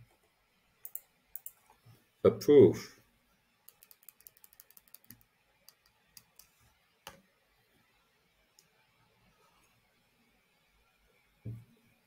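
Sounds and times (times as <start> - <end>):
computer mouse clicks: 0.8 - 1.7, 3.7 - 7.2.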